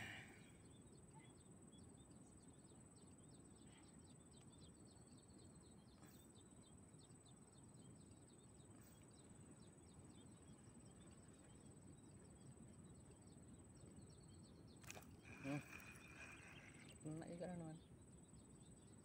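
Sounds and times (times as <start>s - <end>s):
small birds chirping: 0.0s - 19.0s
steady high-pitched whine: 0.0s - 19.0s.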